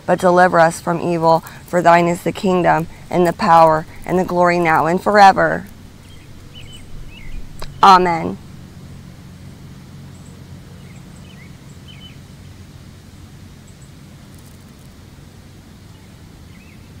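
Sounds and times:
steady low rumble: 0:00.0 - 0:13.6.

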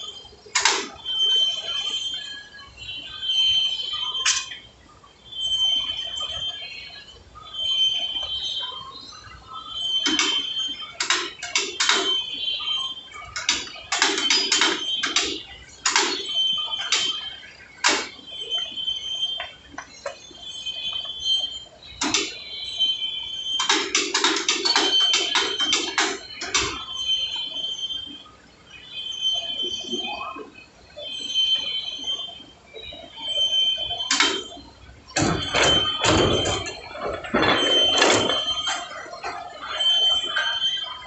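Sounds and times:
metal clanks and clicks: 0:00.6 - 0:01.0, 0:10.0 - 0:12.2, 0:13.3 - 0:17.2, 0:22.0 - 0:22.4, 0:23.6 - 0:26.8, 0:34.1 - 0:34.6, 0:35.2 - 0:39.6.

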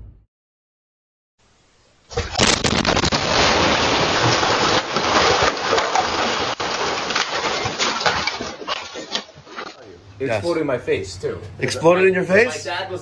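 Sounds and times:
house explosion blast: 0:02.2 - 0:05.6
rumble and crackling debris: 0:02.2 - 0:09.8.

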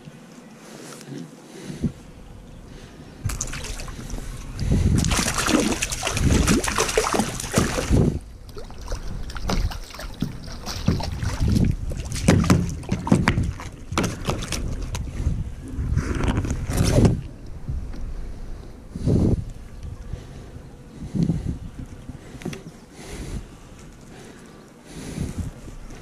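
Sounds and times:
fish splashing in water: 0:03.2 - 0:04.4, 0:05.0 - 0:15.0.

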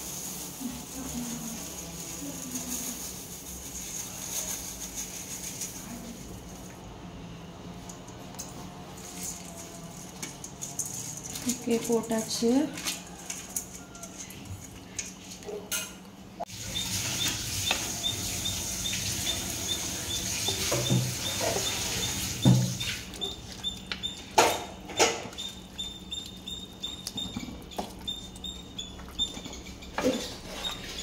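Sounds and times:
spatula stirring: 0:16.7 - 0:31.0.

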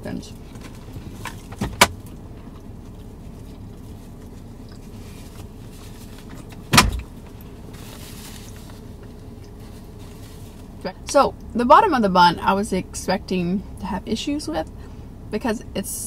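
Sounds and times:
heavy thud: 0:06.7 - 0:07.1.

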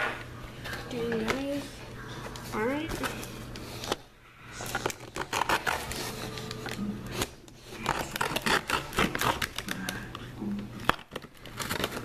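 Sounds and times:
plastic crinkling: 0:02.2 - 0:12.0.

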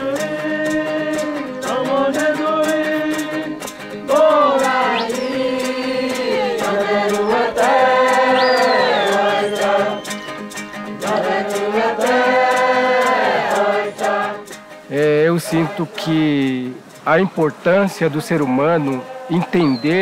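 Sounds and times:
men chanting: 0:00.0 - 0:10.0, 0:11.0 - 0:16.8, 0:17.5 - 0:20.0
sharp percussive beat: 0:00.0 - 0:20.0.

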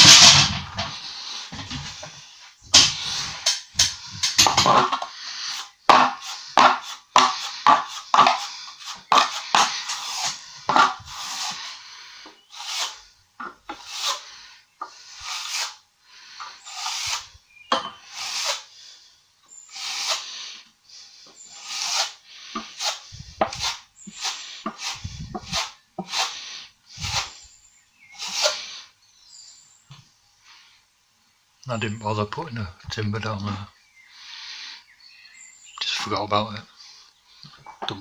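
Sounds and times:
trowel scraping plaster: 0:02.8 - 0:11.8, 0:12.5 - 0:13.0, 0:13.7 - 0:15.8, 0:16.6 - 0:17.3, 0:18.0 - 0:18.7, 0:19.7 - 0:20.5, 0:21.5 - 0:27.4, 0:28.2 - 0:28.8.

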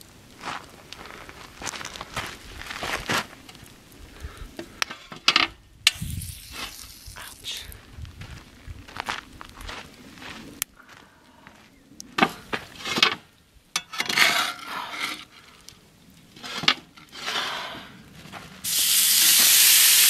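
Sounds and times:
steak sizzling in a pan: 0:05.9 - 0:07.2, 0:18.7 - 0:20.0
cooking gear scraping: 0:12.7 - 0:15.6, 0:16.3 - 0:17.8.

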